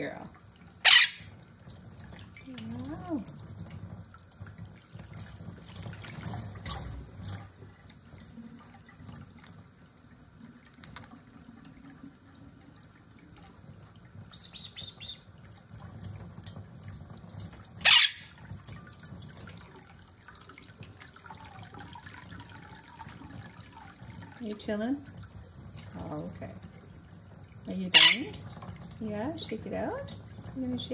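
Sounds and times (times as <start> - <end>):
faucet water running: 0.0 - 30.9
parrot chirping softly: 0.8 - 1.4, 14.2 - 15.3, 17.8 - 18.4, 27.7 - 28.4
bird wings splashing water: 1.7 - 9.6, 13.6 - 27.2.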